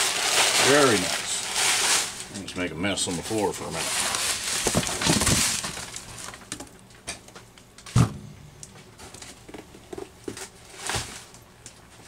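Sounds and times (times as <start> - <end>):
clicks and rustles of packing material: 3.0 - 8.0.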